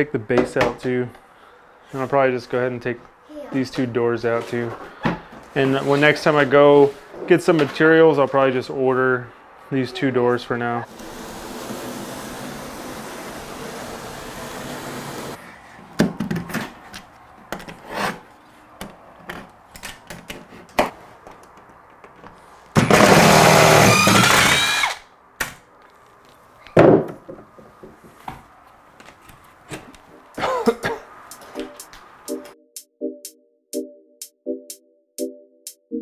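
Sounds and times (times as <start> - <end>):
power drill running: 22.9 - 25.0
knocks and thumps: 26.8 - 28.0.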